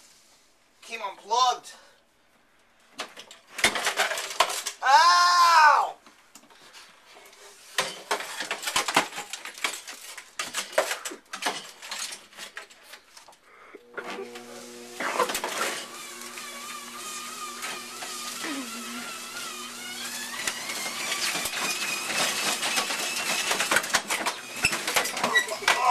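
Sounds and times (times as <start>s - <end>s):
metal parts clanking and rattling: 3.0s - 4.8s, 7.8s - 13.0s, 21.1s - 25.9s.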